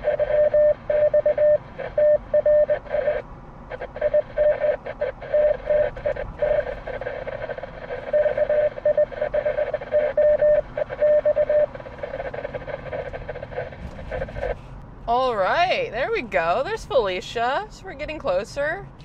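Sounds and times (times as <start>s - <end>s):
morse code tone beeping: 0.0s - 3.2s, 3.8s - 13.8s
radio static hiss: 0.0s - 14.7s.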